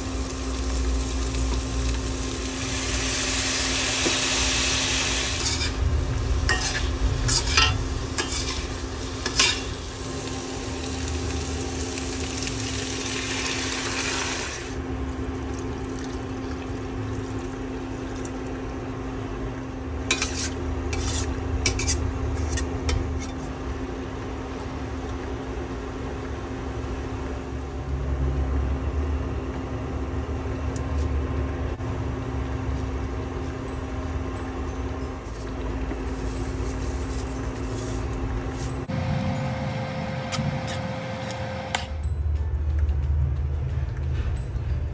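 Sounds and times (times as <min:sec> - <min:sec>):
food sizzling in a pan: 0:00.0 - 0:14.8, 0:20.1 - 0:23.4
steady low hum: 0:00.0 - 0:44.9
metal spatula scraping a pan: 0:05.2 - 0:09.7, 0:20.1 - 0:23.5.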